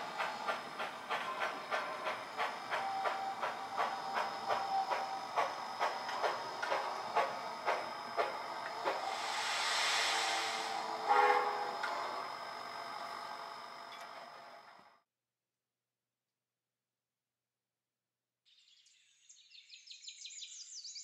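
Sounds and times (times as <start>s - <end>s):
steam hissing: 0.0s - 13.8s
model steam locomotive chuffing: 0.0s - 14.8s.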